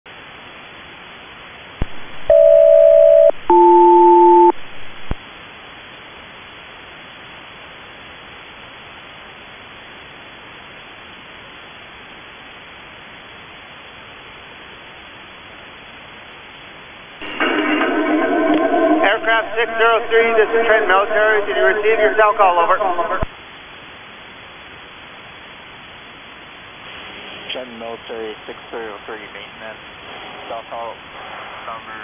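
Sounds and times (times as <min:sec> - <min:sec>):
two-tone radio bursts: 0:17.2 - 0:23.3
radio hiss: 0:18.5 - 0:23.4, 0:26.7 - 0:32.0.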